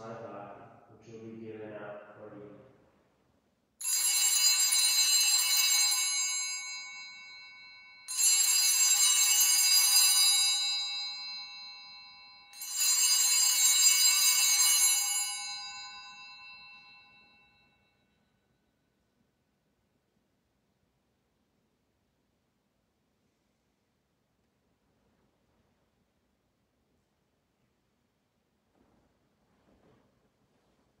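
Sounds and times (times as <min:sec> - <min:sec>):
altar bell ringing: 0:03.8 - 0:18.7.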